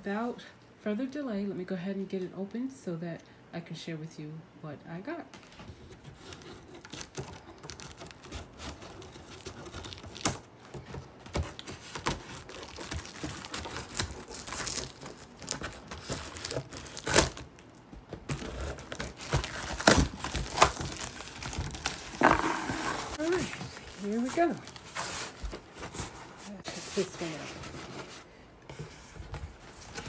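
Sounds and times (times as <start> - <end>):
tape tearing off cardboard: 11.4 - 17.5, 18.3 - 23.4
scissors cutting packing tape: 11.6 - 17.5, 18.3 - 22.3.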